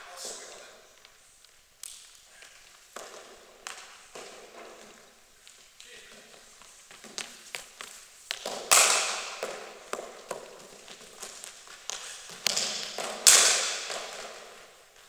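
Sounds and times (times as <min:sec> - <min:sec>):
cricket ball striking bat: 0:08.4 - 0:10.4.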